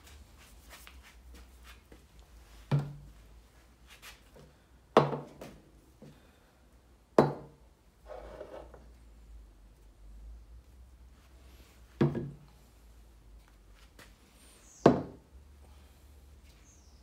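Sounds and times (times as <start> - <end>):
bottles knocking on wooden table: 5.0 - 5.3.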